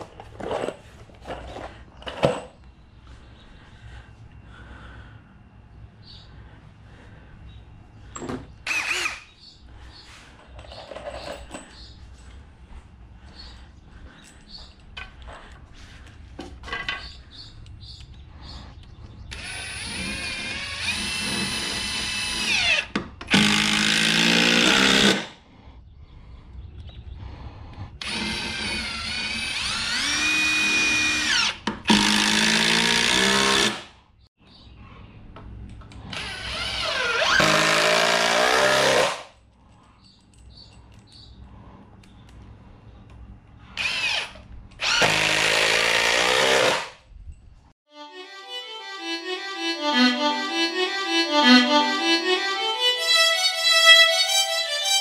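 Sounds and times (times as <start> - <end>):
cordless drill driving screws: 8.7 - 9.3, 19.3 - 25.3, 28.0 - 33.8, 36.1 - 39.2, 43.8 - 46.9.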